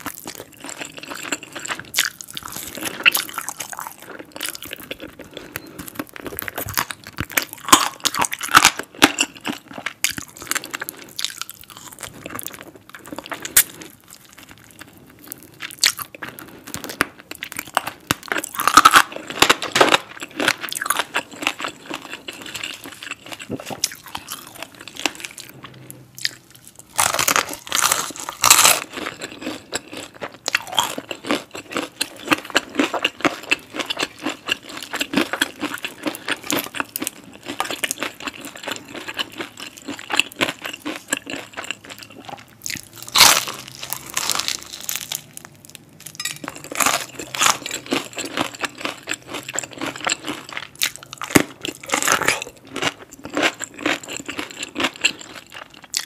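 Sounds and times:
crunchy chewing of fried chicken: 0.0 - 56.0.

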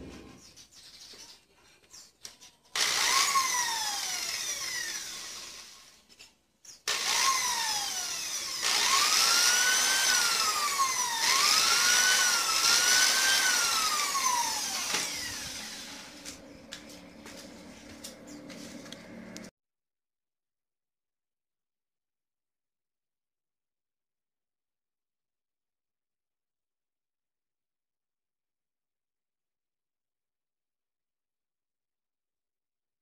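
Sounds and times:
electric drill motor whine: 2.8 - 6.0, 6.9 - 16.4.

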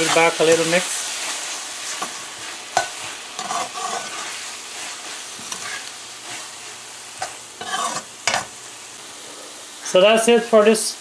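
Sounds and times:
food sizzling: 0.0 - 11.0
metal spoon scraping pot: 7.6 - 8.4.

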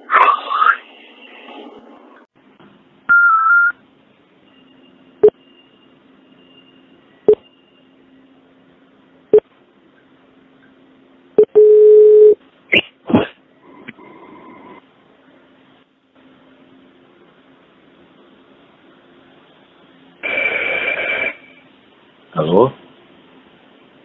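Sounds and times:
steady lower beep: 4.4 - 8.4
wavering high beep: 4.5 - 8.0.

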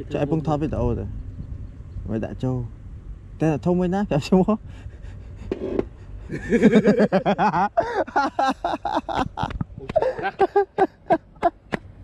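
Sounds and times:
men speaking: 0.0 - 1.2, 2.0 - 2.8, 3.4 - 4.7
men laughing: 4.9 - 11.8.

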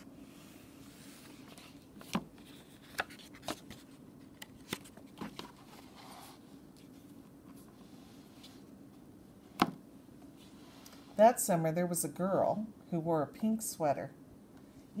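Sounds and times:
faint steady hum: 0.0 - 15.0
paper pages turning: 1.0 - 7.7.

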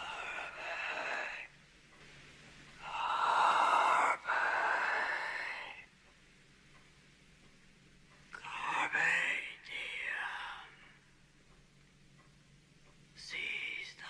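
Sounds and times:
man whispering: 0.0 - 1.5, 8.4 - 10.9, 13.2 - 14.0.

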